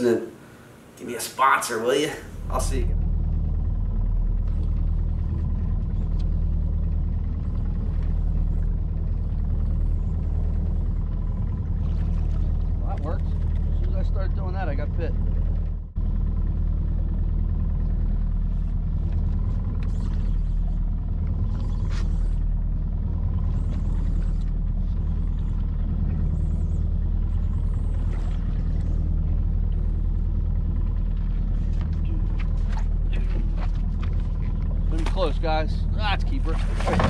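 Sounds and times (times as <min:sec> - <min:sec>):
outboard motor running: 0:01.8 - 0:37.0.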